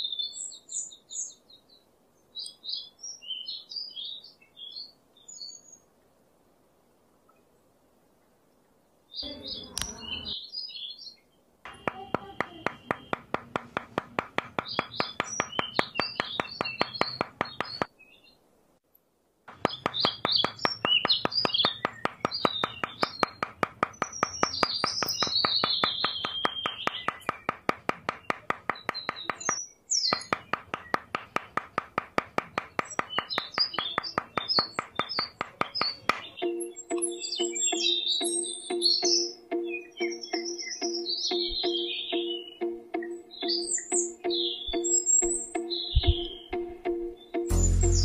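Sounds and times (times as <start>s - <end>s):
birds chirping: 9.2s - 11.1s, 11.7s - 18.3s, 19.5s - 48.0s
hammer tapping sticks into sand: 11.7s - 17.9s, 19.5s - 48.0s.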